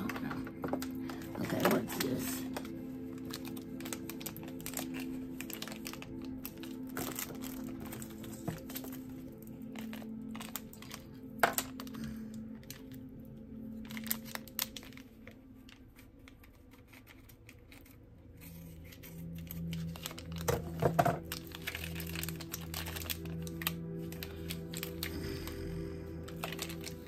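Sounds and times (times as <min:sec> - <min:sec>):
packaging crinkling: 0:00.0 - 0:27.0
soft spa music from speaker: 0:00.0 - 0:27.0.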